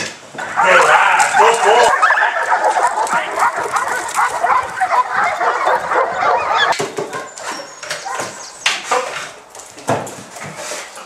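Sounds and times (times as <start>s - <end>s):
dog yelping and whining: 0.5s - 8.6s.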